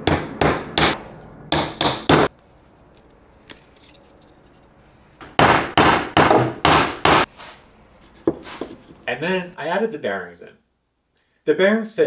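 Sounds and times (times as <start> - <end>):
hammer striking wooden dowels: 0.0 - 2.3, 5.2 - 7.3.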